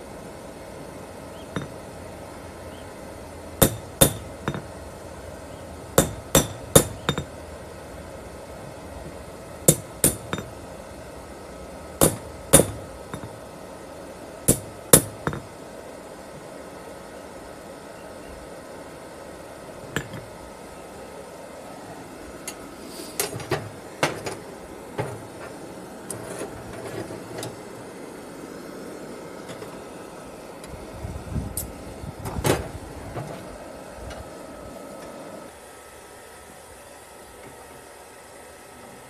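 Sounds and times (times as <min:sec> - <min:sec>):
hammer striking steel on anvil: 0:03.6 - 0:04.7, 0:06.0 - 0:07.3, 0:09.7 - 0:10.5, 0:12.0 - 0:13.4, 0:14.5 - 0:15.4.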